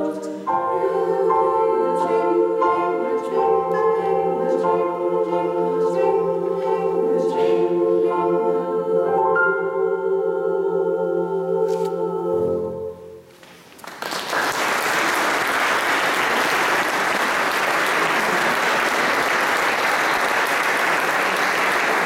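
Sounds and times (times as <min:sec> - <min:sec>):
choir and keyboard chord: 0:00.0 - 0:13.2
audience applause: 0:13.5 - 0:22.0.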